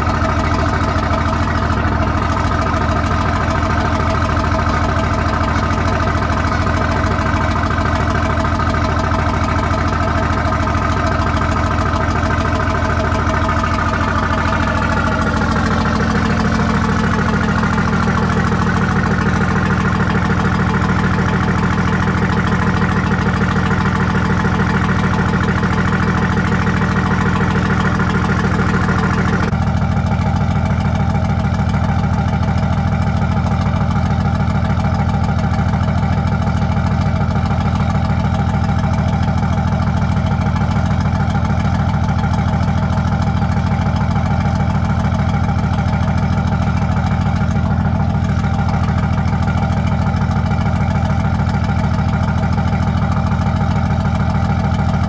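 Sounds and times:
boat engine idling: 0:00.0 - 0:55.0.

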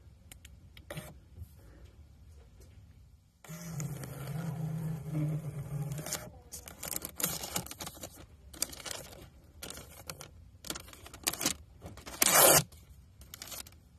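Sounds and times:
paper rustling: 0:05.9 - 0:13.8.

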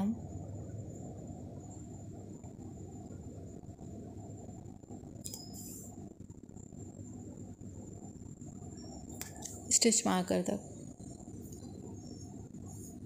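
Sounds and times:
thin high whine: 0:00.0 - 0:13.0
sharp click: 0:05.2 - 0:05.5.

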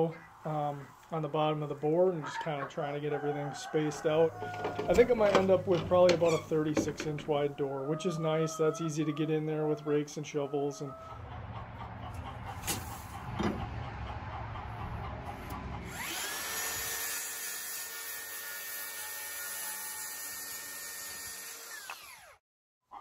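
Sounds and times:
low rumble: 0:11.2 - 0:16.1
circular saw cutting wood: 0:15.4 - 0:22.4.

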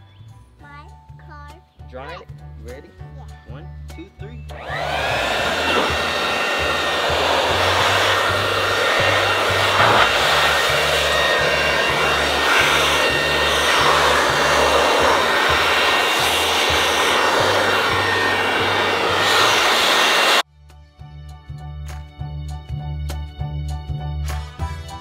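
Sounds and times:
electric motor whining and rushing: 0:04.5 - 0:20.4.

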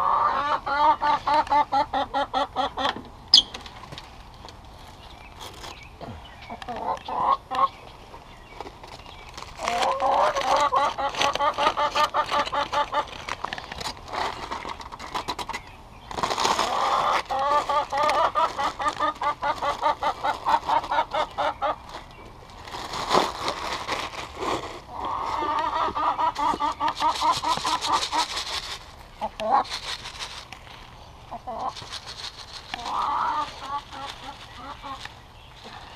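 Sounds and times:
hens clucking: 0:00.0 - 0:03.5, 0:06.0 - 0:23.4, 0:24.5 - 0:35.9
clicks and rustles: 0:08.5 - 0:21.0.

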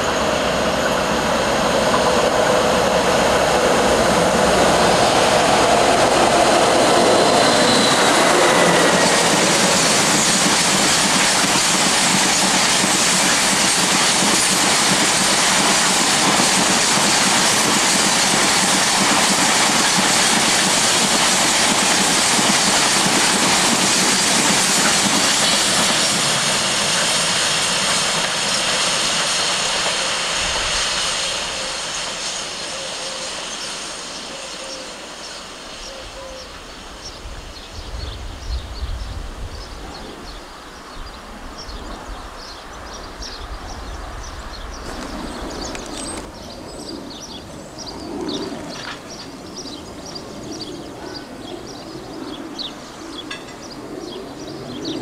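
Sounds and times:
train wagons rolling over track: 0:00.0 - 0:34.8.

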